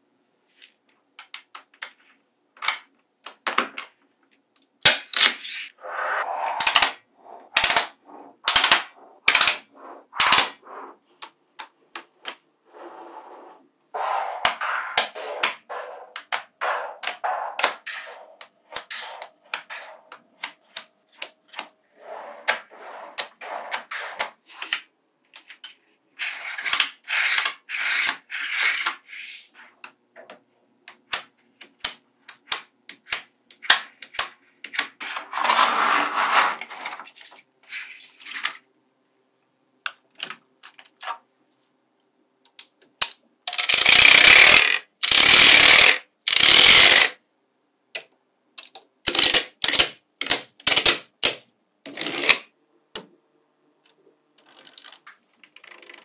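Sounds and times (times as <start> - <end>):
magnetic balls clicking together: 42.5 - 47.2, 48.6 - 52.4.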